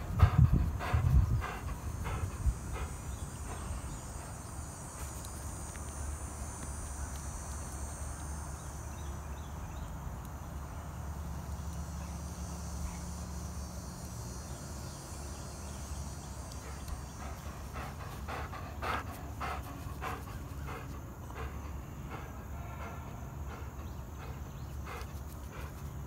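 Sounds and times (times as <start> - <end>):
dog panting: 0.0 - 5.7, 16.4 - 26.0.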